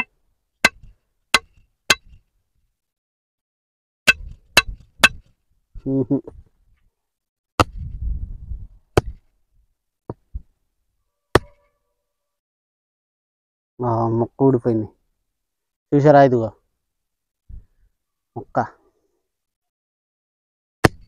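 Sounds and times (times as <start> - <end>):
coconut shell being struck: 0.0 - 2.2.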